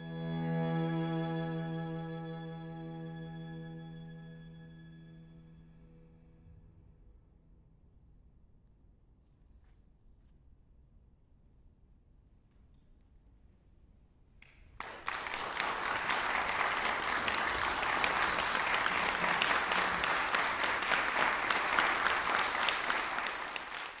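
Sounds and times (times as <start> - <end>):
audience applause: 14.8 - 24.0.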